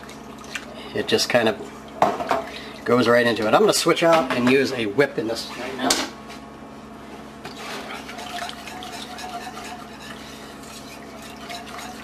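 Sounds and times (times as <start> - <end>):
wire whisk scraping a pot: 7.6 - 12.0.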